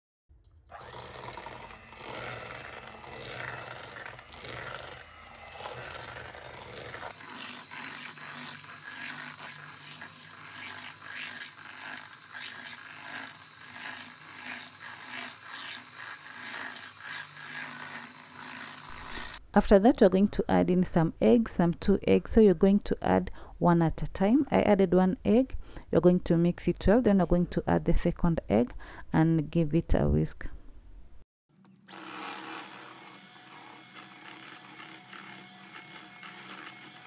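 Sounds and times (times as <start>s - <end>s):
electric hand mixer running: 0.6s - 19.4s, 31.8s - 37.0s.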